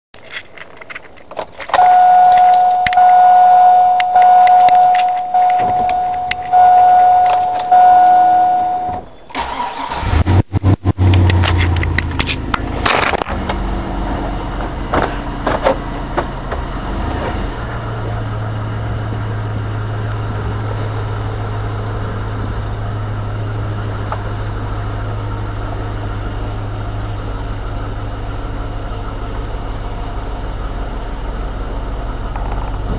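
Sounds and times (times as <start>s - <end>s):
engine cranking and idling: 1.7s - 29.5s
high electronic warning tone: 1.8s - 9.1s.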